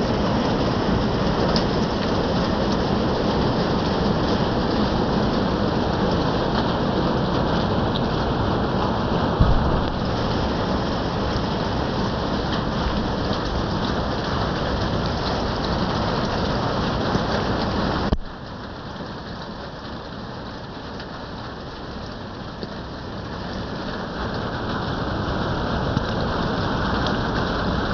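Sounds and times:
rain on a roof: 0.0s - 27.9s
brief knock: 9.4s - 10.0s.

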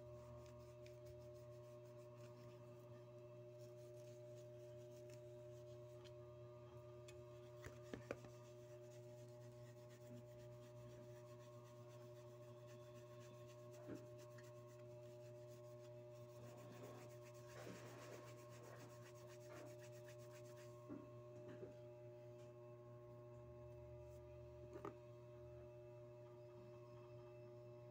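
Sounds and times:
cloth rubbing on metal: 0.0s - 2.8s, 3.4s - 6.1s, 7.5s - 20.8s
steady low hum: 0.0s - 27.9s.

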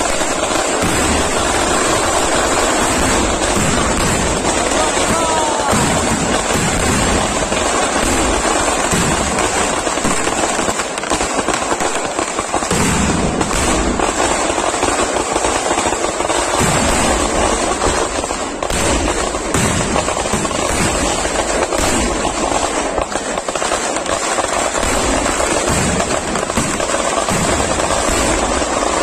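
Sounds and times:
fireworks bangs and crackling: 0.0s - 29.0s.

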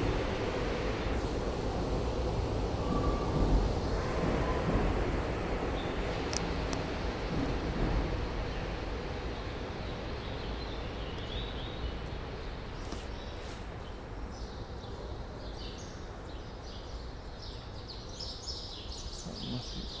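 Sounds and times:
small birds chirping: 9.2s - 20.0s.

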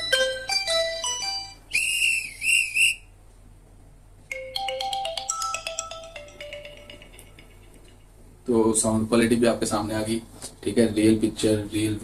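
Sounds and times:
chiming ringtone notes: 0.0s - 1.6s, 4.3s - 8.0s.

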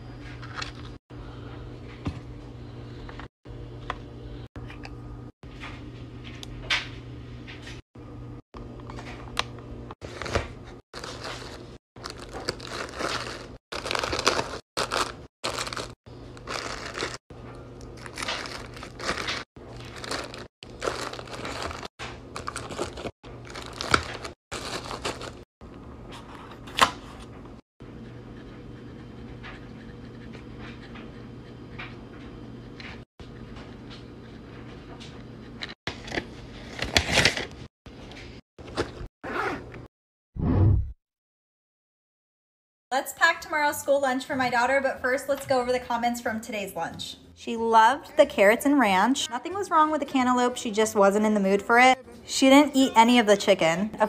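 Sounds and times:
plastic packaging crinkling: 11.0s - 17.2s, 17.8s - 25.4s.

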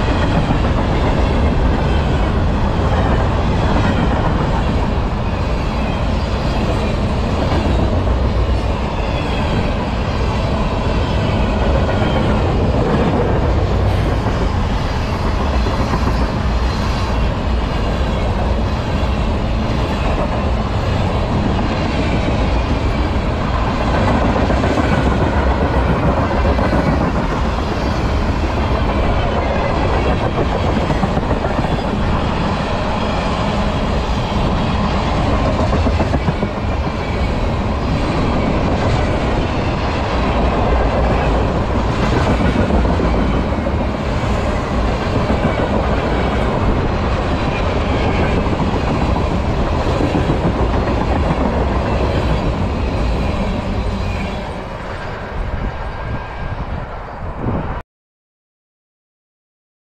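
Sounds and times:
train wheels running on rails: 0.0s - 57.8s.

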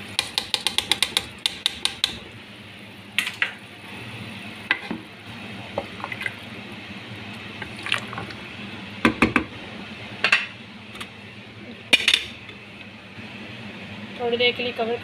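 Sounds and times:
spoon knocking against pot: 0.2s - 2.2s
water boiling and bubbling: 3.2s - 9.6s.

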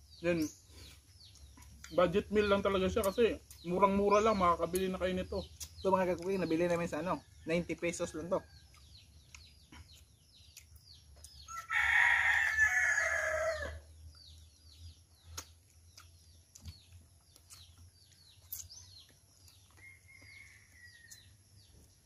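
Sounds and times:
rooster crowing: 11.5s - 13.9s
faint high chirps: 12.4s - 22.0s.

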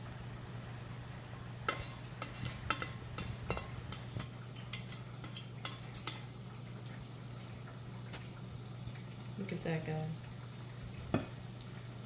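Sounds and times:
low steady hum: 0.0s - 12.0s
utensil clinking and scraping cookware: 1.6s - 6.4s.

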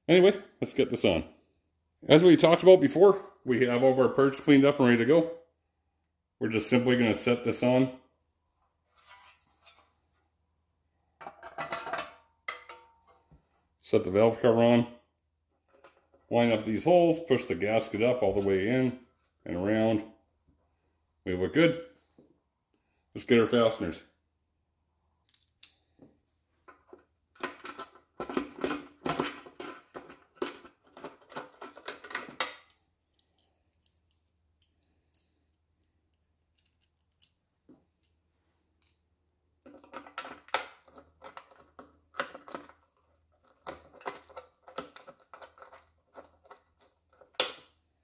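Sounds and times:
metal fasteners clinking: 26.8s - 38.2s, 39.6s - 47.6s.

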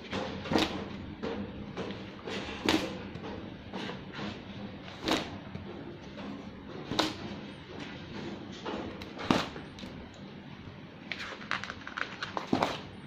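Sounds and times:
stiff sample pages flapping: 11.1s - 12.9s.

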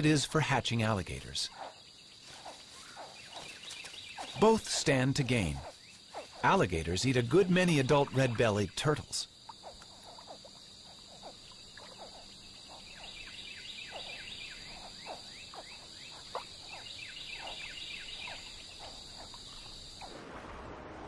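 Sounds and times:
frogs calling: 0.0s - 20.2s
insect trill: 0.0s - 21.0s.

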